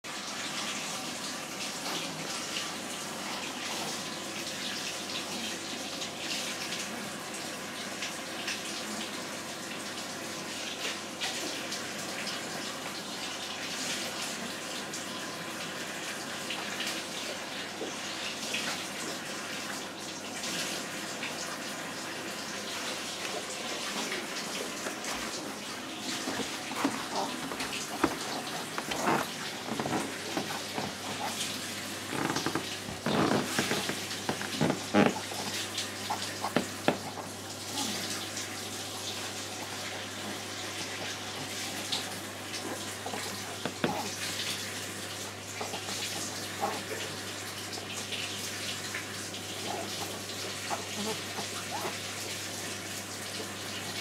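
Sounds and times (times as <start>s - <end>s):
knocks and rustles: 26.2s - 31.3s, 32.1s - 35.4s.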